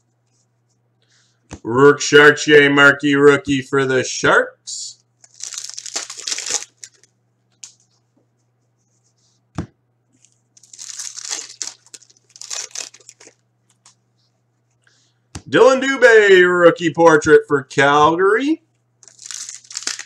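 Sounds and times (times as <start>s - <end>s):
low steady hum: 0.0s - 20.0s
foil wrapper crinkling: 5.2s - 7.8s, 10.2s - 14.0s, 19.0s - 20.0s.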